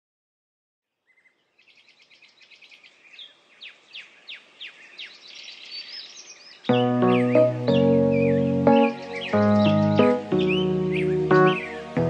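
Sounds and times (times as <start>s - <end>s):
birds chirping: 1.0s - 12.0s
bird down-slurred notes: 6.7s - 12.0s.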